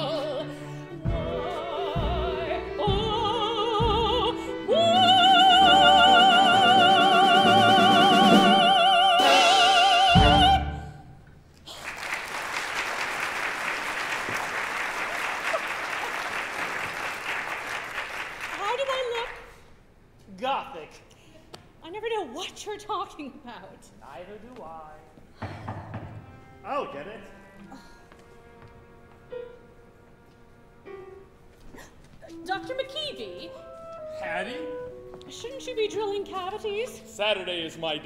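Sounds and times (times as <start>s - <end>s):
woman singing opera: 0.0s - 11.0s
orchestra playing: 0.0s - 11.2s, 26.1s - 27.6s, 28.2s - 31.5s, 32.3s - 38.0s
audience applauding: 11.7s - 19.4s.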